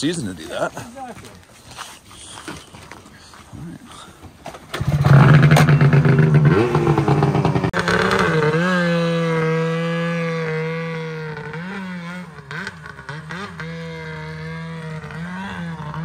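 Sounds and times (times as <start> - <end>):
snowmobile engine revving: 4.7 - 16.0.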